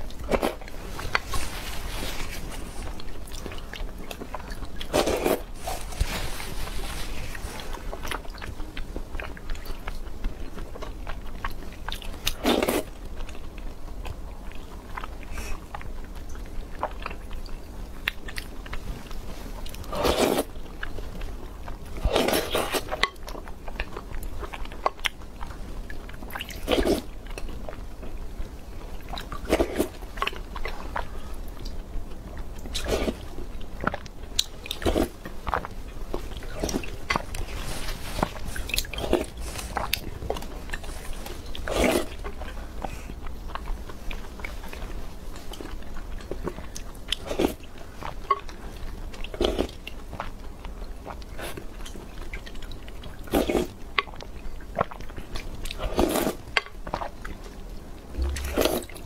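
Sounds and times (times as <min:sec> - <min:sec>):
chewing sticky food: 0:00.0 - 0:59.0
slurping from a spoon: 0:19.9 - 0:20.5.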